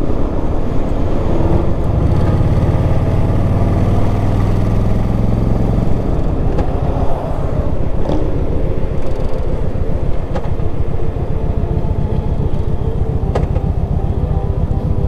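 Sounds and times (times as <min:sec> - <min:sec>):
wind and road noise: 0:00.0 - 0:15.0
motorcycle engine pulsing: 0:09.0 - 0:15.0.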